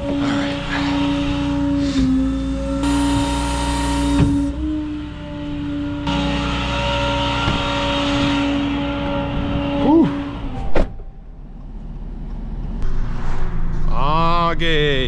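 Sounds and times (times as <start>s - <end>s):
short falling tone: 0.0s - 11.6s
steady whine: 0.0s - 15.0s
truck engine and road noise: 0.0s - 15.0s.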